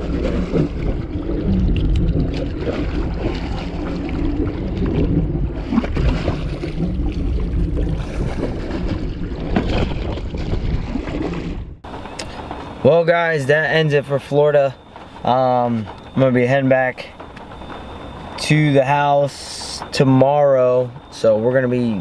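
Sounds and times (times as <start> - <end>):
wind buffeting microphone: 0.0 - 12.8
boat engine idling: 0.0 - 22.0
water sloshing against hull: 0.0 - 22.0.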